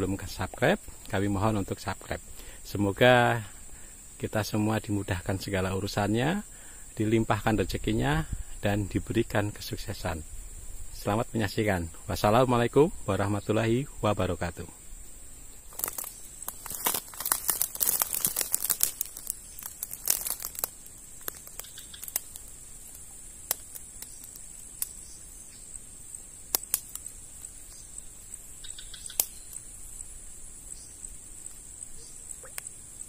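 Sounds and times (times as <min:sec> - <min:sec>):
dry twigs crackling and snapping: 0:15.7 - 0:25.2, 0:26.2 - 0:29.7.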